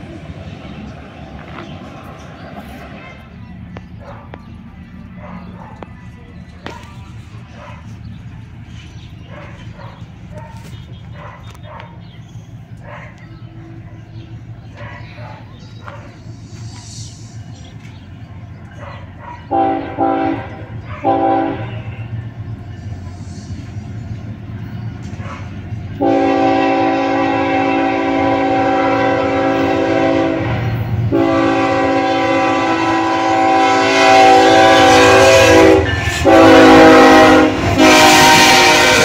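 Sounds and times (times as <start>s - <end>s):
low rumble of train: 0.0s - 39.0s
diesel locomotive horn blasts: 19.5s - 22.2s, 25.9s - 39.0s.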